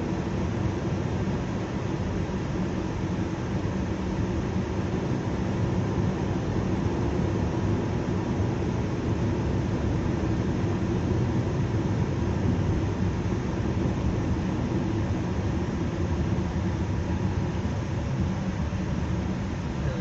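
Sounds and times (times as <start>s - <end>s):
car engine and road rumble: 0.0s - 20.0s.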